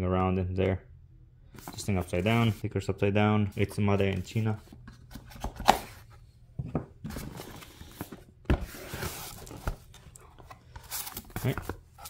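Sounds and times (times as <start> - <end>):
cardboard and foam rustling: 3.6 - 12.0.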